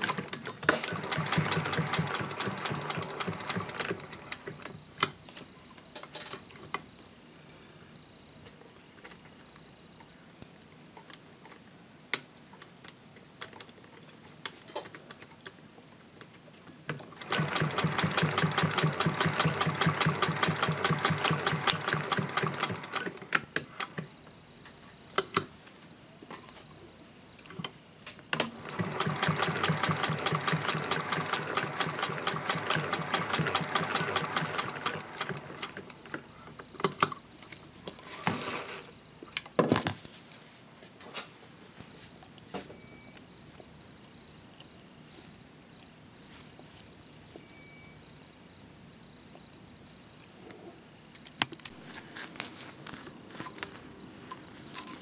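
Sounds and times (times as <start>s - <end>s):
sewing machine stitching: 0.0s - 4.7s, 17.2s - 24.1s, 28.4s - 36.2s, 38.0s - 38.9s.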